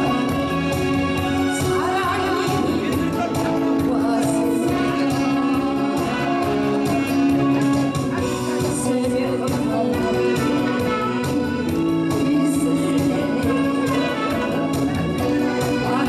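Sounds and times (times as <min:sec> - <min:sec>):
live amplified band: 0:00.0 - 0:16.0
woman singing into a microphone: 0:00.0 - 0:16.0.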